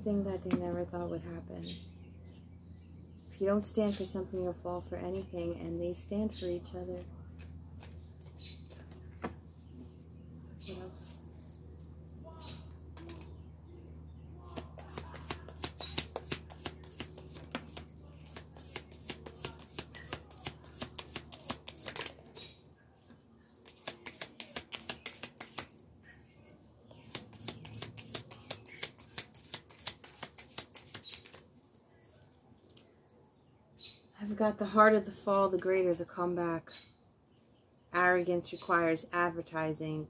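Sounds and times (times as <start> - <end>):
cards being shuffled: 13.0 - 13.3, 14.5 - 22.4, 23.6 - 26.3, 27.0 - 33.3.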